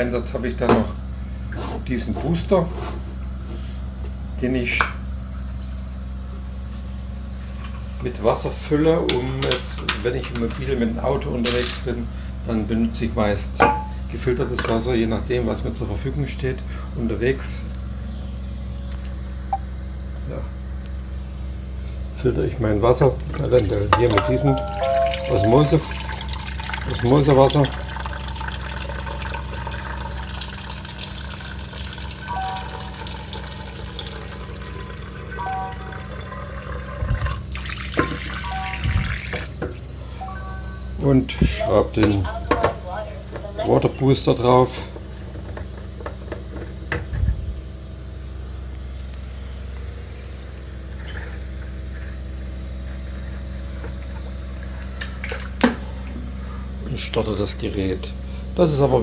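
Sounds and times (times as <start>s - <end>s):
low electrical hum: 0.0s - 59.0s
water running into plastic bottle: 25.9s - 32.3s, 36.2s - 39.6s.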